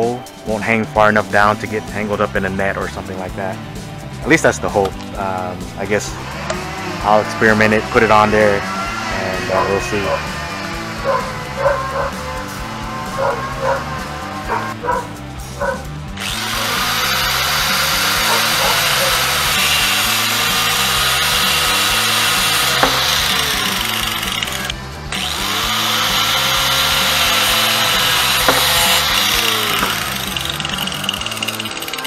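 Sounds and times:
cordless drill running: 6.1s - 14.8s, 16.1s - 32.0s.

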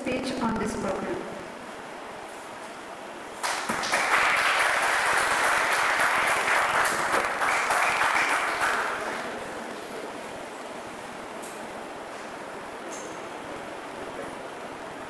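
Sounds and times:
audience clapping: 3.4s - 9.6s.

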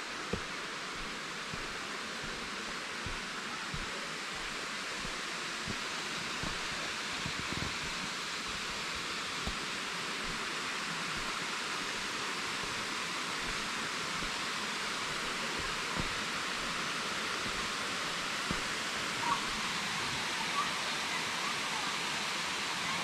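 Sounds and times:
waterfall and creek rushing: 0.0s - 23.0s
faint soft thumps: 0.3s - 8.8s, 15.0s - 16.8s, 18.4s - 18.8s.

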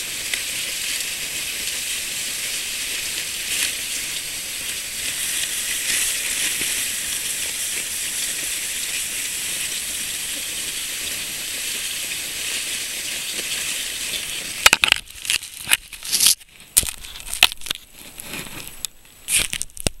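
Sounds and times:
sled sliding on packed snow: 0.0s - 19.3s
loud scrapes and knocks: 14.7s - 18.8s.

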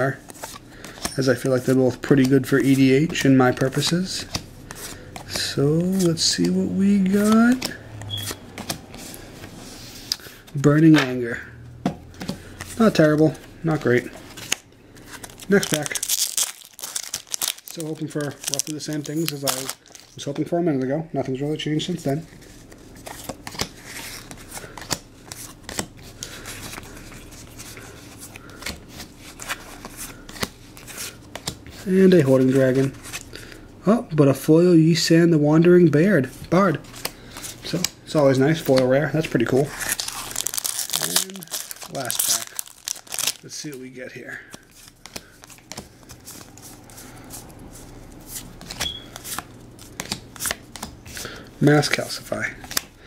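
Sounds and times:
cards sliding and rustling: 0.2s - 11.1s, 22.3s - 33.2s, 44.5s - 52.0s
cards being flicked through: 48.6s - 50.9s.

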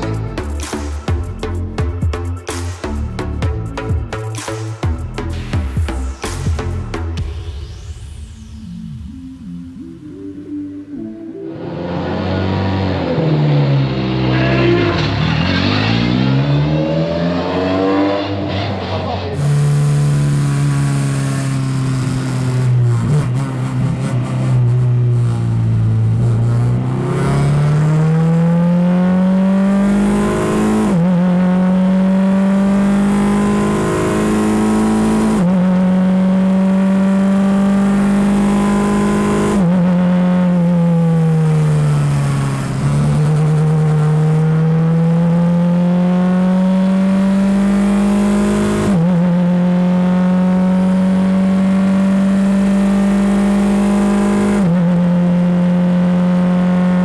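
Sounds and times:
racing car engine revving: 11.5s - 57.0s.

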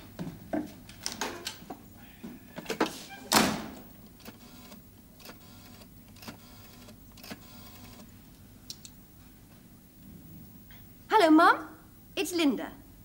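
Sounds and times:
rotary dial clicking and whirring: 4.2s - 8.1s.

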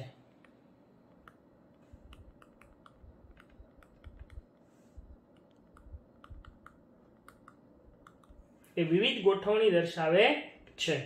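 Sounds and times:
stylus tapping on touchscreen: 2.0s - 4.5s, 5.4s - 8.4s.

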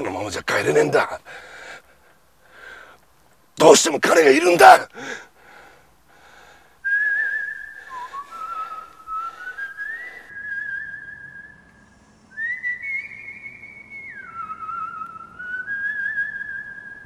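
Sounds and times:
person whistling a slow tune: 6.8s - 17.0s.

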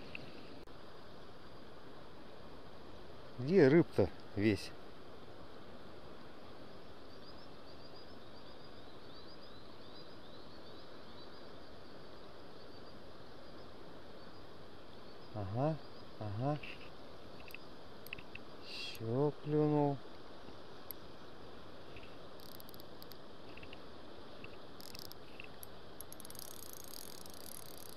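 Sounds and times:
outdoor background hiss: 0.0s - 27.9s
light clicks: 16.8s - 19.1s.

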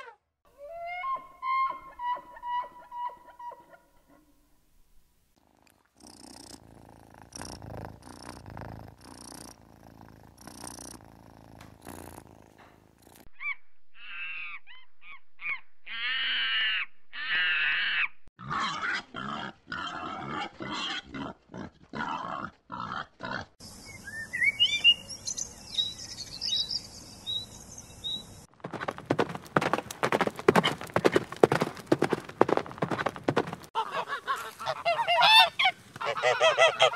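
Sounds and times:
faint animal grunts and clicks: 5.4s - 13.3s.

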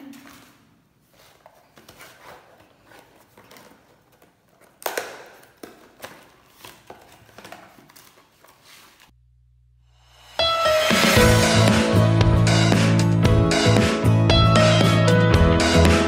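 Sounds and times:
cardboard and paper rustling: 0.0s - 9.1s
paper crinkle: 0.1s - 9.1s
music: 10.0s - 16.0s.

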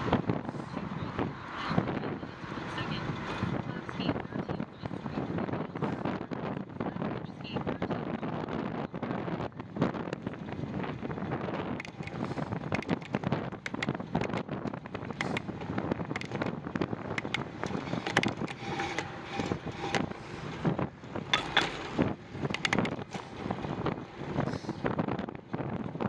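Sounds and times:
wind buffeting microphone: 0.0s - 26.0s
bicycle clicks and rattles: 10.0s - 24.6s.

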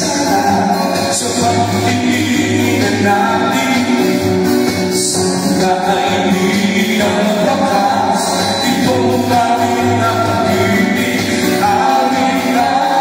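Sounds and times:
loud backing music: 0.0s - 13.0s
person singing: 0.0s - 13.0s.

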